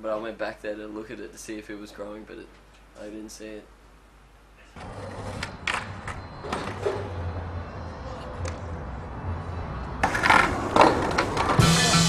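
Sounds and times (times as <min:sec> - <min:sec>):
skateboard wheels rolling on concrete: 0:04.8 - 0:12.0
skateboard clacks: 0:10.0 - 0:11.6.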